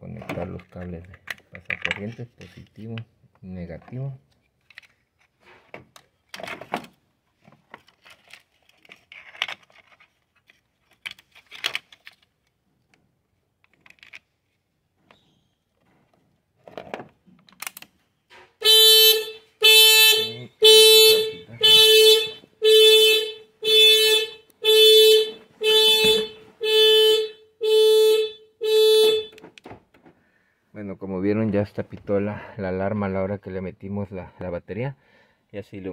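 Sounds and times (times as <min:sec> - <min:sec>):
car alarm honking: 0:18.6 - 0:29.6.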